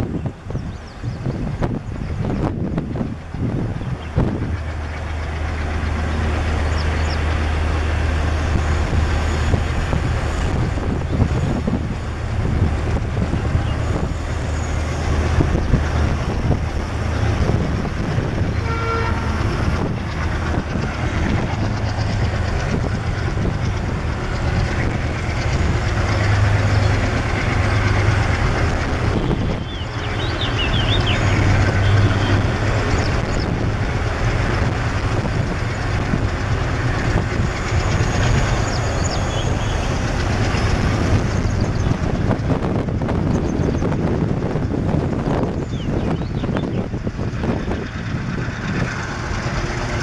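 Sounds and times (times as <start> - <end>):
diesel locomotive engine drone: 0.0 - 50.0
train wheels on rails: 0.0 - 50.0.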